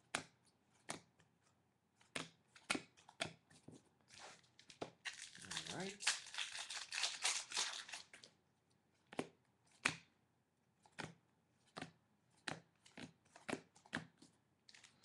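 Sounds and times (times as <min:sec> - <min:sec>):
foil wrapper crinkling: 0:05.0 - 0:08.2.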